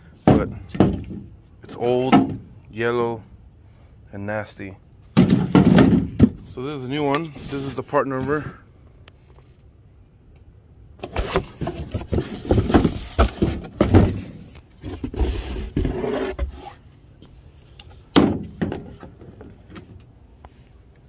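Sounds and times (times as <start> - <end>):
cardboard box being handled: 11.0 - 16.8
plastic scraping and rubbing: 11.0 - 16.8.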